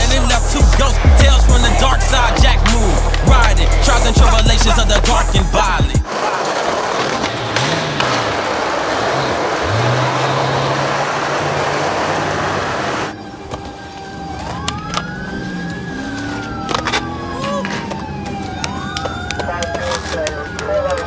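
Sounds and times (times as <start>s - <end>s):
skateboard wheels rolling: 0.0s - 21.0s
siren rising and falling: 8.3s - 21.0s.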